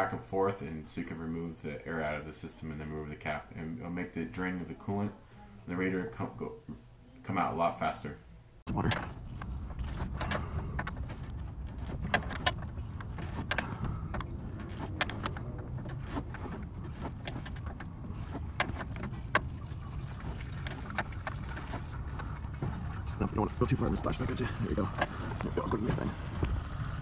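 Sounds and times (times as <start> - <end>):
steady low rumble: 8.7 - 27.0
coolant running out: 9.1 - 27.0.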